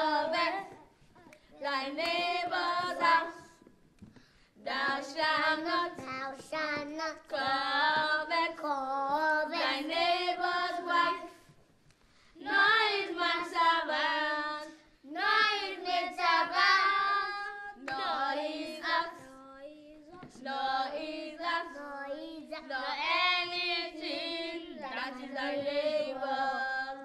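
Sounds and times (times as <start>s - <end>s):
children and woman singing: 0.0s - 3.8s, 4.6s - 11.6s, 12.4s - 27.0s.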